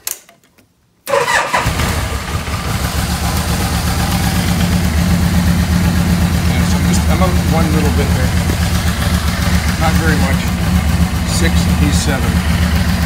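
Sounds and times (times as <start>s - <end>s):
starter motor cranking: 1.1s - 11.3s
motorcycle engine idling: 1.5s - 13.0s.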